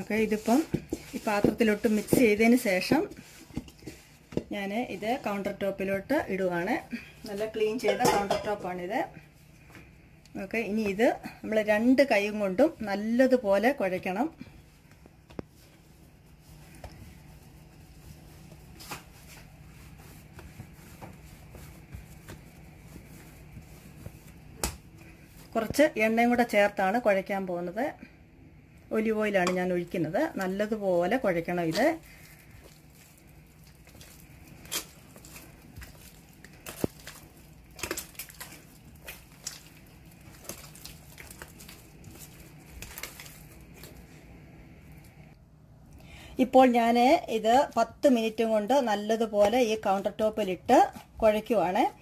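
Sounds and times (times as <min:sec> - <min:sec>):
dough slapping on countertop: 0:00.0 - 0:08.8, 0:16.4 - 0:26.0, 0:29.4 - 0:44.0, 0:49.2 - 0:51.7
hands kneading dough: 0:00.0 - 0:52.0
dough smacking on stone: 0:24.5 - 0:24.9.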